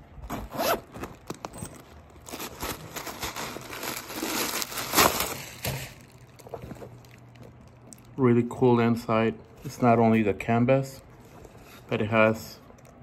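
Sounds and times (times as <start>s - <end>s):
tissue paper crinkling: 1.0s - 7.8s.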